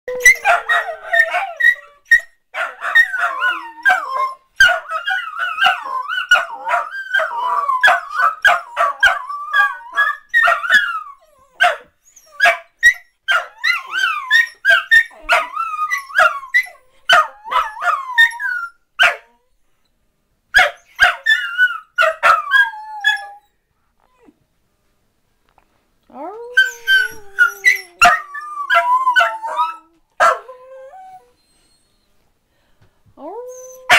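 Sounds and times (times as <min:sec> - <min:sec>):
dogs howling: 0:00.1 - 0:02.0, 0:02.6 - 0:11.5, 0:26.4 - 0:31.3
dogs barking and yipping: 0:00.1 - 0:19.3, 0:20.6 - 0:23.4, 0:26.6 - 0:30.5.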